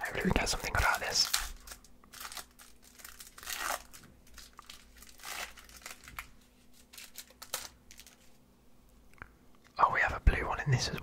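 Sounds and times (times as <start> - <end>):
foil wrapper crinkling and tearing: 0.0 - 8.4.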